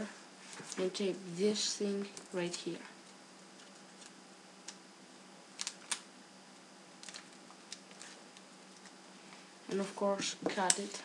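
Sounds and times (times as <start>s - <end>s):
low steady hum: 0.0s - 11.0s
paper tubes and tape crinkling: 3.0s - 4.8s, 7.0s - 9.0s.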